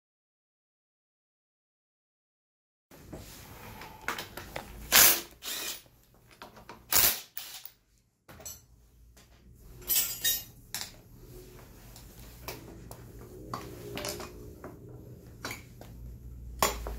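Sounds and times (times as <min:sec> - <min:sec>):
impact driver bursts: 0:04.9 - 0:05.8.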